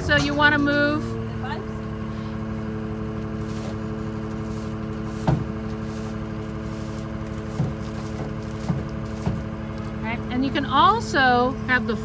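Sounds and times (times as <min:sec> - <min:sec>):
rig engine running: 0:00.0 - 0:12.0.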